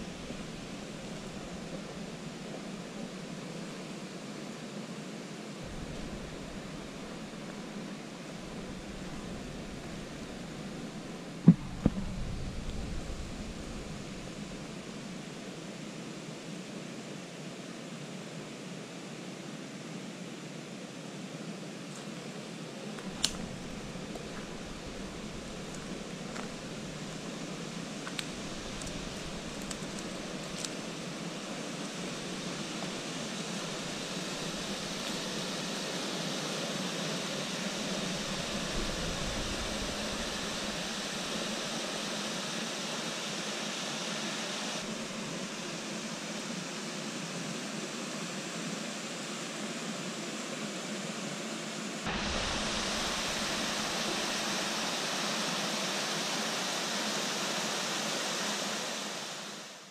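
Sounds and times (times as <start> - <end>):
waterfall rushing into pool: 23.0 - 47.4, 52.0 - 59.9.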